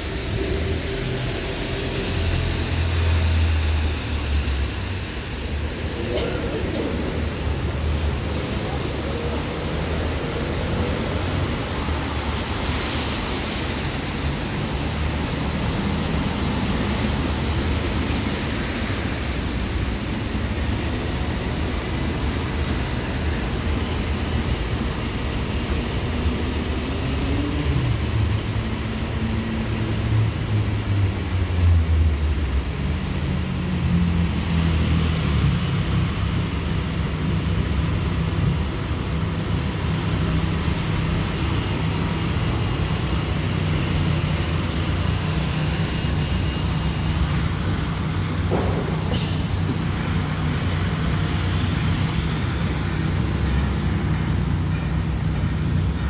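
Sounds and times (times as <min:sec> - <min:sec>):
cars passing: 0:00.0 - 0:56.0
diesel bus engines: 0:00.0 - 0:56.0
tyre hiss on wet road: 0:07.0 - 0:29.0, 0:34.4 - 0:56.0.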